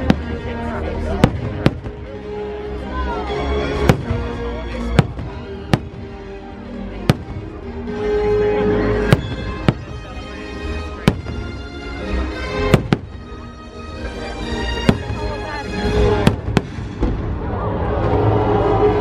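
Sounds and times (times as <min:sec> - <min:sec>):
fireworks show music: 0:00.0 - 0:19.0
fireworks bursting: 0:01.0 - 0:02.1, 0:03.8 - 0:06.2, 0:07.1 - 0:07.5, 0:09.0 - 0:13.4, 0:14.8 - 0:17.5.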